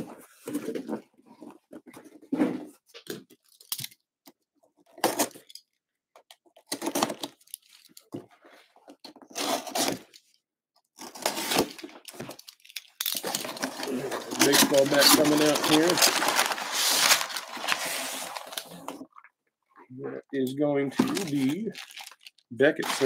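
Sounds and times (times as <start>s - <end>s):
cardboard rustling: 11.0s - 19.0s, 20.9s - 23.0s.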